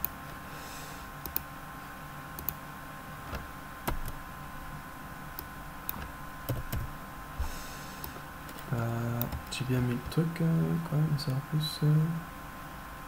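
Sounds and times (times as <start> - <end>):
low steady hum: 0.0 - 13.0
keyboard and mouse clicks: 1.2 - 1.5, 2.4 - 2.6, 3.3 - 4.2, 5.4 - 6.9, 8.0 - 10.2.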